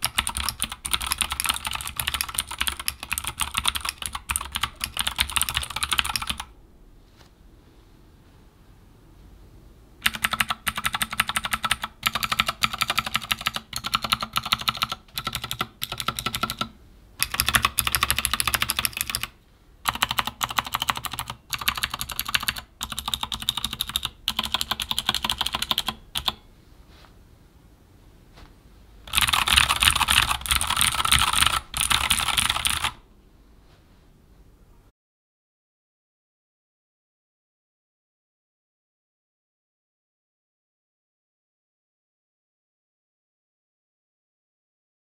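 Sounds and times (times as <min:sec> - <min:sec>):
mechanical keyboard typing: 0:00.0 - 0:06.5, 0:10.0 - 0:26.4, 0:29.1 - 0:33.0.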